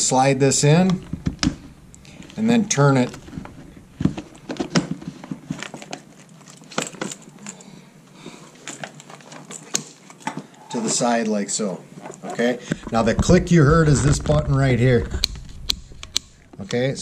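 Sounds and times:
plastic rustling: 0.6 - 7.5, 11.9 - 16.6.

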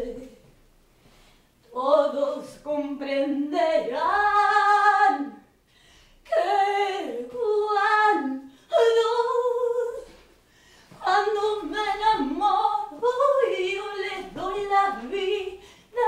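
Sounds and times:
woman singing unaccompanied: 0.0 - 0.5, 1.6 - 5.5, 6.2 - 10.3, 10.9 - 16.0
singer breathing: 1.0 - 1.6, 5.6 - 6.2, 10.4 - 11.0, 15.6 - 16.0.

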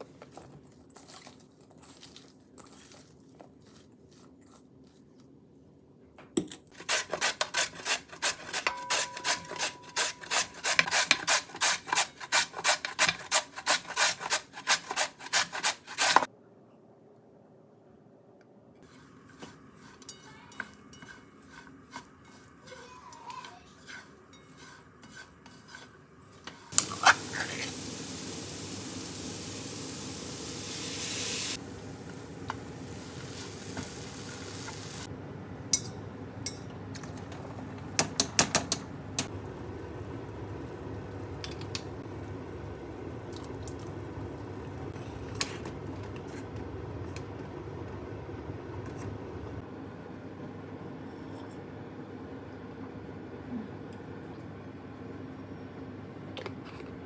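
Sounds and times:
carrots sizzling in frying oil: 26.7 - 35.1.

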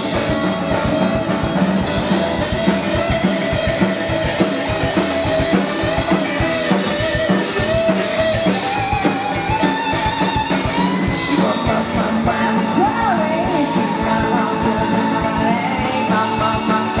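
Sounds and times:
drum beat: 0.0 - 17.0
live rock band playing: 0.0 - 17.0
wavering lead guitar melody: 0.0 - 17.0.

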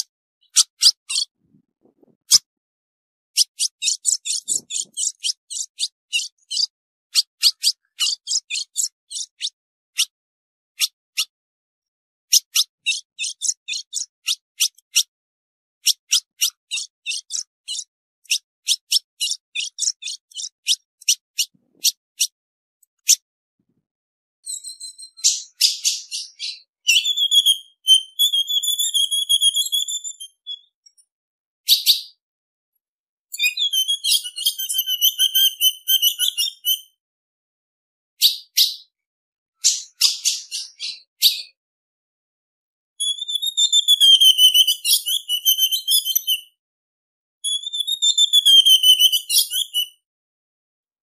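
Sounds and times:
bird chips and trills: 0.0 - 1.4, 3.4 - 10.2, 10.8 - 11.3, 12.3 - 15.1, 15.8 - 22.4, 24.4 - 31.1, 31.7 - 32.2, 33.3 - 37.0, 38.2 - 38.9, 39.6 - 41.6, 43.0 - 46.6, 47.4 - 50.0.

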